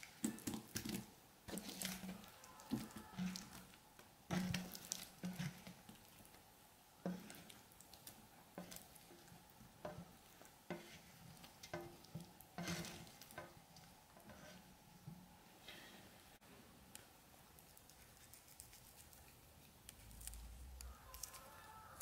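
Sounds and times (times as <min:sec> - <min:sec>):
spatula scraping a pan: 0:01.5 - 0:03.7, 0:04.3 - 0:05.8, 0:07.0 - 0:07.6, 0:10.7 - 0:13.6, 0:14.2 - 0:14.8.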